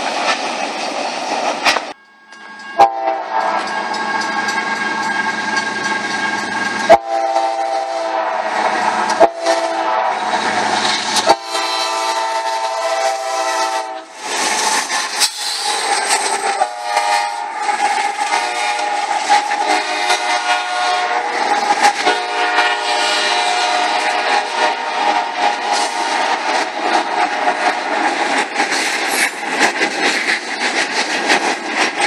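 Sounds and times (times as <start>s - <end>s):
rail and wheel noise: 0.0s - 32.0s
locomotive horn blasts: 2.8s - 3.8s, 6.9s - 10.3s, 11.2s - 14.1s, 16.6s - 17.5s, 18.2s - 26.5s.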